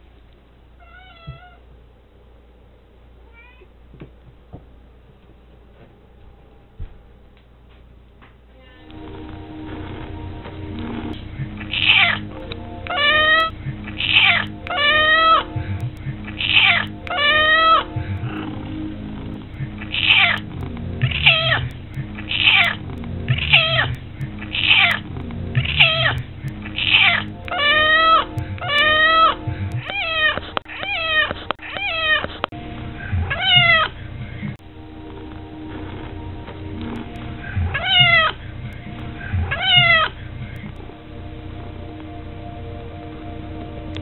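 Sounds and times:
cat meowing: 0.8s - 1.6s, 3.2s - 3.7s, 16.5s - 17.8s, 26.8s - 32.3s, 33.2s - 33.9s, 37.6s - 38.4s, 39.4s - 40.1s.

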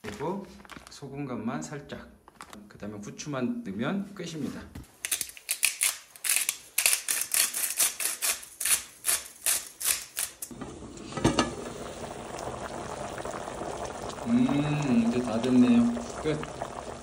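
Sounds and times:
pepper grinder clicking: 5.0s - 10.5s
pot boiling: 10.5s - 17.0s.

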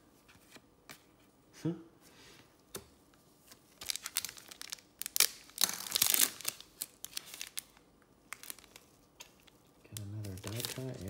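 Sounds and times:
foil wrapper crinkling: 3.8s - 11.0s.

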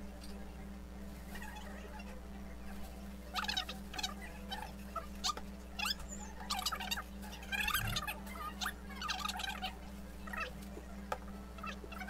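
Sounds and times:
low hum: 7.5s - 8.2s.

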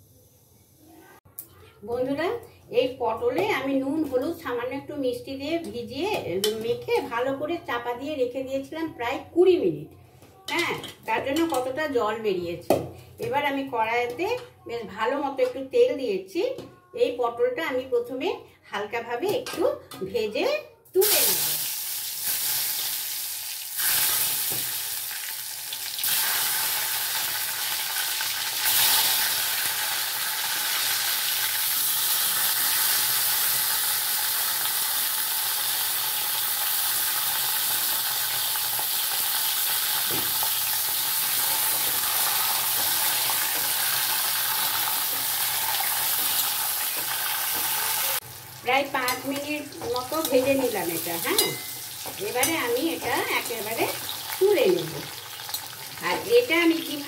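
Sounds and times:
vegetables sizzling in hot oil: 21.0s - 57.0s.

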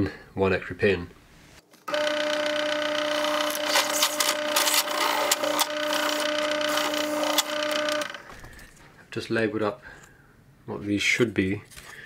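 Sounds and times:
drill bit scraping plastic: 1.9s - 8.3s
drill press motor hum: 1.9s - 8.6s.

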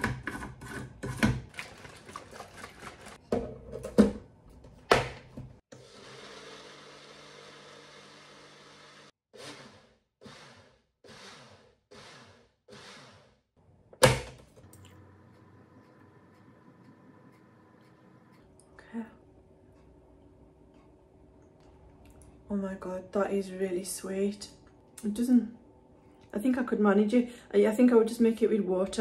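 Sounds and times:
blender motor running: 5.7s - 13.4s.

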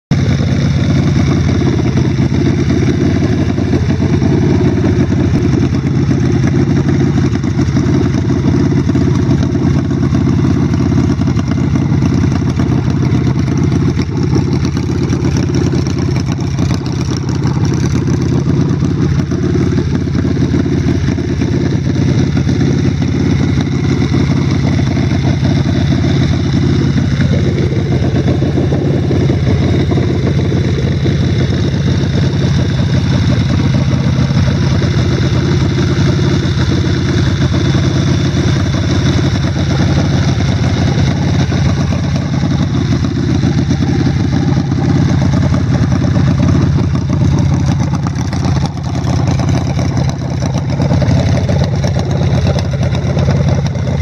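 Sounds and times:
motorcycle engine idling: 0.1s - 54.0s.

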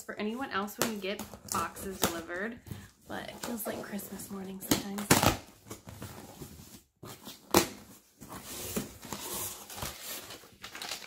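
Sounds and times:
cardboard rustling and scraping: 0.2s - 4.6s, 5.4s - 11.0s.

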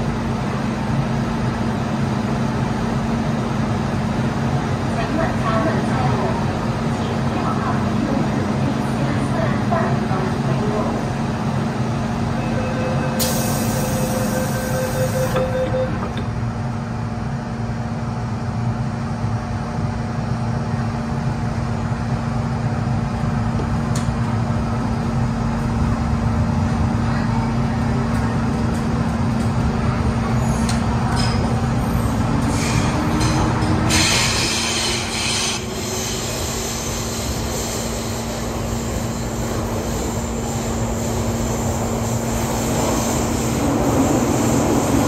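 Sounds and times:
train electrical hum: 0.0s - 45.0s
train running rumble: 0.0s - 45.0s
train doors closing: 12.1s - 16.5s, 27.9s - 45.0s.

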